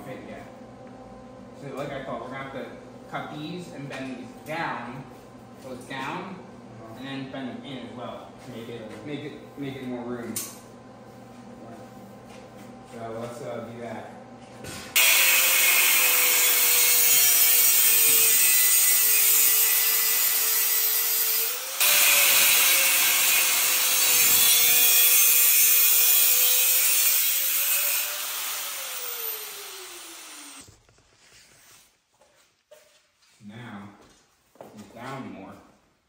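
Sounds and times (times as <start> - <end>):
angle grinder cutting steel: 15.0 - 30.6.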